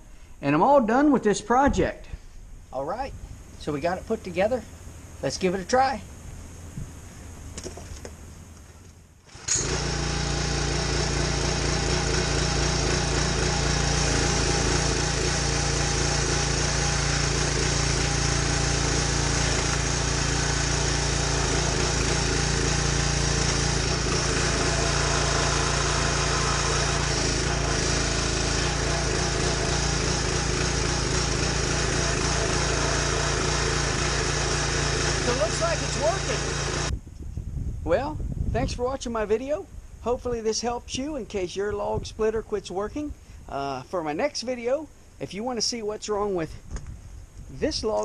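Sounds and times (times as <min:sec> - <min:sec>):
small gas engine running: 0:09.3 - 0:36.9.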